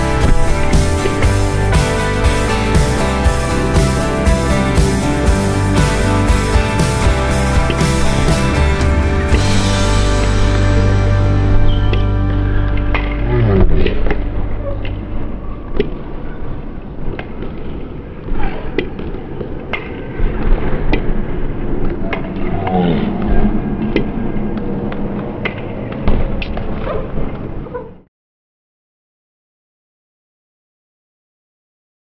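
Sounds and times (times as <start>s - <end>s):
hall noise: 0.0s - 17.7s.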